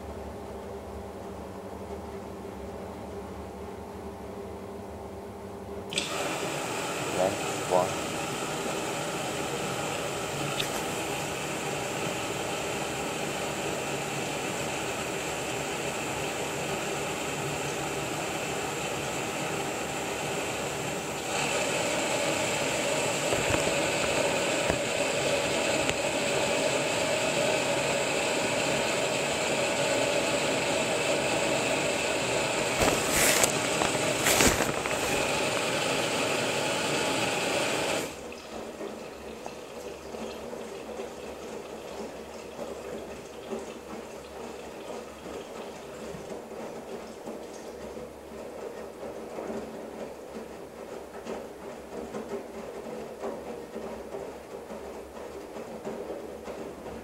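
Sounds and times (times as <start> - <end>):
water rushing into drum: 5.9 - 47.9
washing machine tumbling: 5.9 - 57.0.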